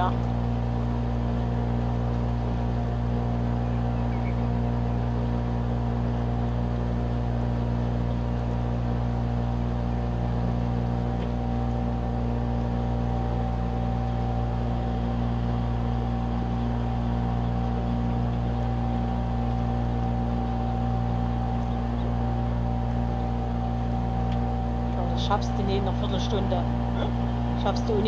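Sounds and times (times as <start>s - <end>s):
boat engine droning: 0.0s - 28.0s.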